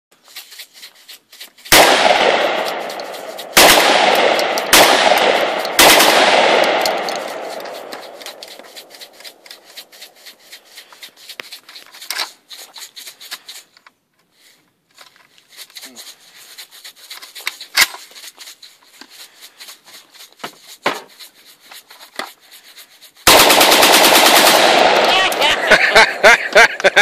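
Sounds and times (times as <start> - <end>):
gunshots with long echo: 1.7 - 8.8, 23.3 - 26.5
faint gun handling clicks: 1.8 - 9.6.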